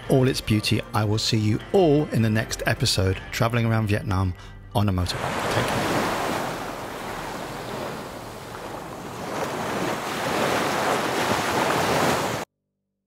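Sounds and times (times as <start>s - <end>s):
waves washing: 5.1s - 12.5s.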